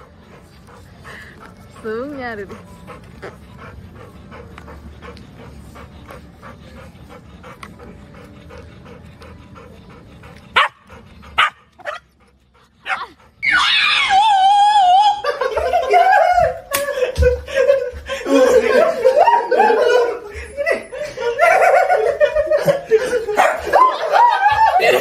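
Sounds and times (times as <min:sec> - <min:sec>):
dog yipping: 0:12.8 - 0:14.8
dog whine-howling: 0:13.4 - 0:15.3.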